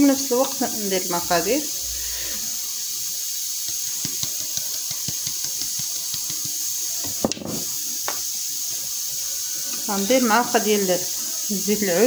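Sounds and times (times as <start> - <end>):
flour sifting hiss: 0.0 - 12.0
sieve tapping: 3.6 - 8.2.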